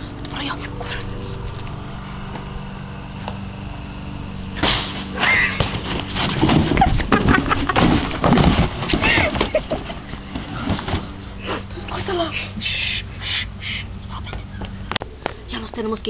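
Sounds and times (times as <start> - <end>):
steady low hum: 0.0 - 16.0
bumping and rustling: 4.5 - 12.6.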